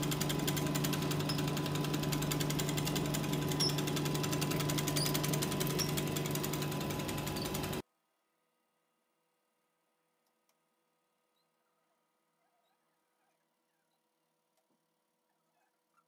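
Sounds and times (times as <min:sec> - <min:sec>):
fast rattling pulse: 0:00.0 - 0:07.8
machine hum: 0:00.0 - 0:07.8.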